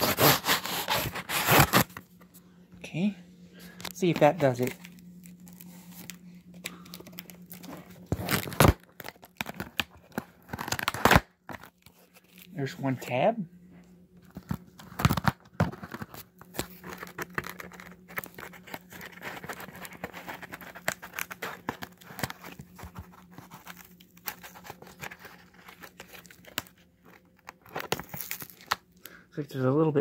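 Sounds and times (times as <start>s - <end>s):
packing tape peeling and tearing: 0.0s - 2.0s, 6.8s - 12.5s, 14.4s - 28.8s.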